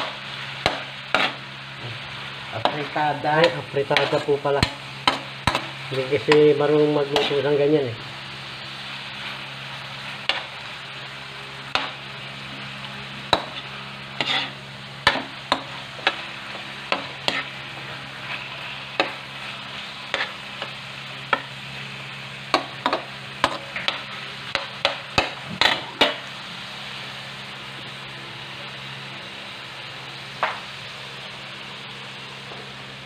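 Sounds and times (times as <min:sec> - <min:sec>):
food sizzling: 0:00.0 - 0:33.0
metal ladle scraping wok: 0:13.4 - 0:16.3, 0:16.9 - 0:19.2.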